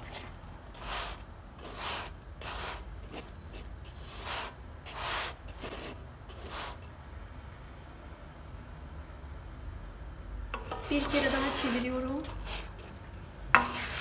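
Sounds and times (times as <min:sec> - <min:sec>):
spatula scraping bread in a pan: 0:00.0 - 0:06.9, 0:10.6 - 0:14.0.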